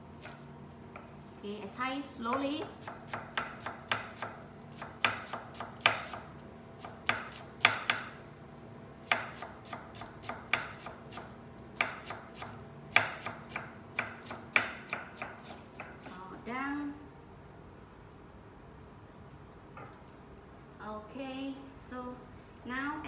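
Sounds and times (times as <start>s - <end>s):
knife chopping on cutting board: 2.3s - 8.2s, 9.0s - 16.1s.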